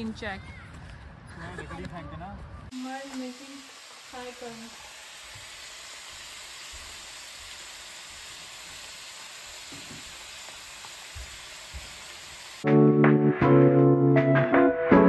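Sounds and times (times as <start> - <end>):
vegetables sizzling in pan: 2.7 - 12.6.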